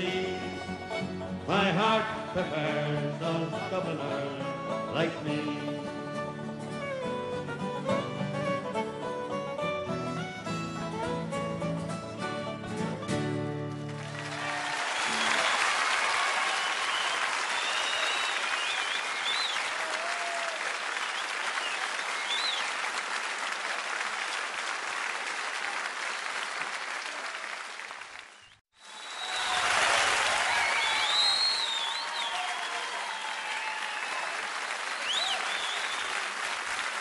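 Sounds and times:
audience applauding: 13.7 - 37.0
whistles from audience: 14.3 - 22.8, 28.3 - 36.4.

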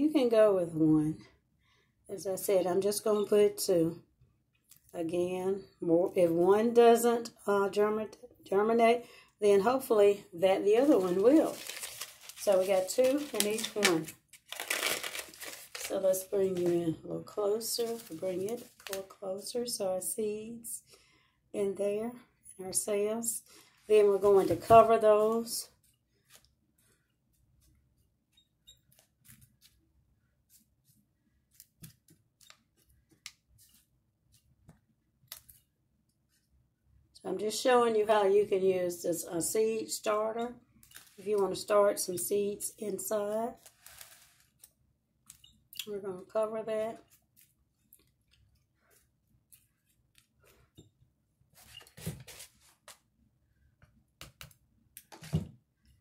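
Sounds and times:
hands rustling potting soil: 10.5 - 19.5, 23.9 - 28.2, 43.2 - 44.8.

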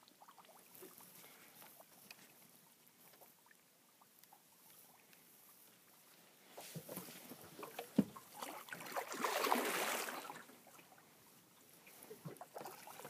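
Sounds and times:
fish splashing in water: 7.6 - 10.5.

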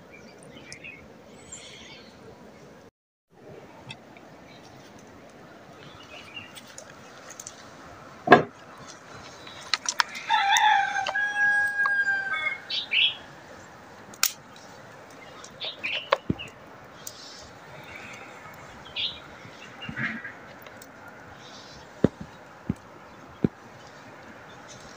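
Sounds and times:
rooster crowing: 10.0 - 13.3
sharp snaps: 14.1 - 14.7.

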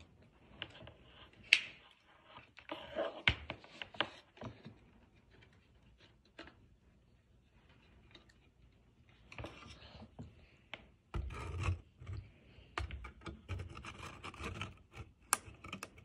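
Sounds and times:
handling noise rubbing and scraping: 9.1 - 16.0.

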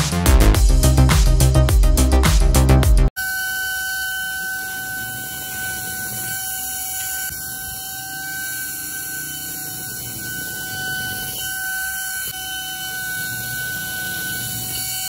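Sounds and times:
small motor whining: 3.2 - 15.0.

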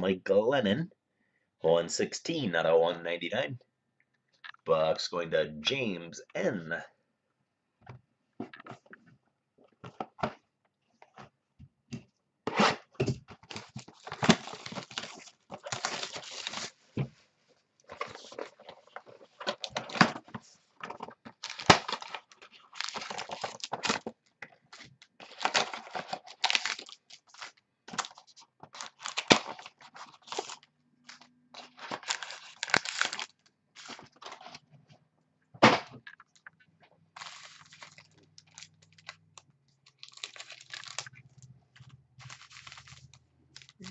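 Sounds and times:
cards and packaging rustling: 8.4 - 35.0, 35.9 - 43.9.

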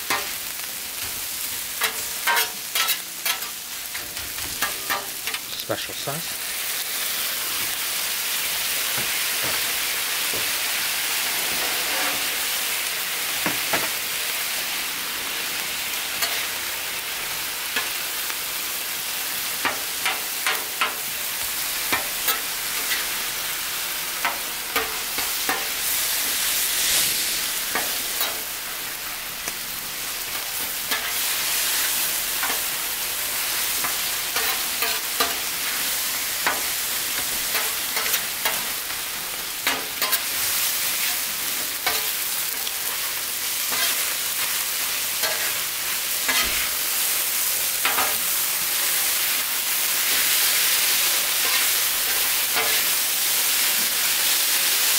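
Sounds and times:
food sizzling on a griddle: 0.0 - 54.9
metal spatula scraping griddle: 1.8 - 5.4, 11.1 - 12.6, 24.2 - 28.5, 33.5 - 38.7, 39.6 - 41.1, 43.7 - 44.1, 46.3 - 46.8.

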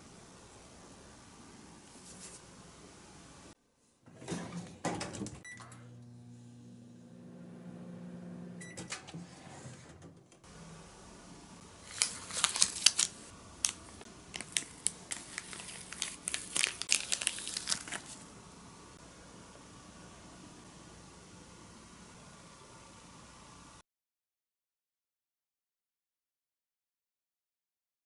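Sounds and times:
microwave oven humming: 4.1 - 12.3
plastic sheet crinkling: 11.8 - 18.2.

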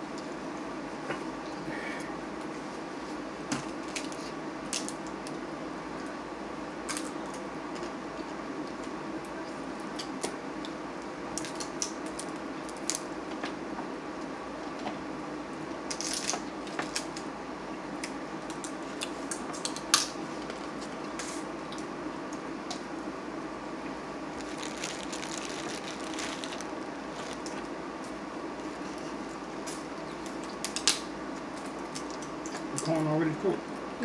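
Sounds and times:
steady low hum: 0.0 - 34.0
wet squishing of crab meat: 24.4 - 27.5
crab shells cracking: 24.4 - 27.6, 30.3 - 31.0.

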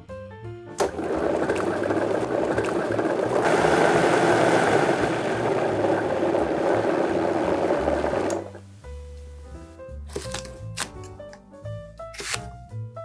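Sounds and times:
blender motor whirring: 0.8 - 8.6
churning liquid: 0.8 - 8.6.

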